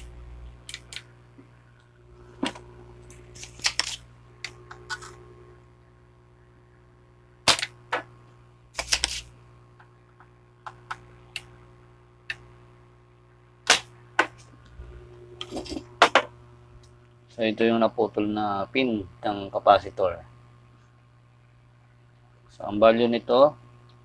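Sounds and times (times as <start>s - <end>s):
desoldering pump snapping: 0.0s - 1.1s, 1.8s - 5.2s.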